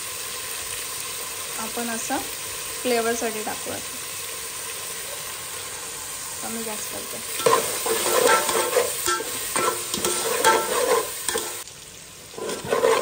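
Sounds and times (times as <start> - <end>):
masala sizzling: 0.0 - 13.0
metal spoon scraping pot: 7.4 - 11.6, 12.4 - 13.0.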